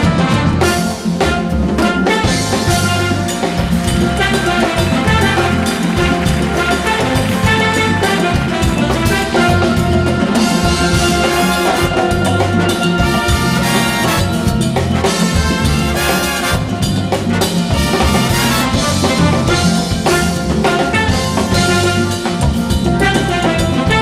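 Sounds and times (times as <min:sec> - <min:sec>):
big band calypso instrumental: 0:00.0 - 0:24.0.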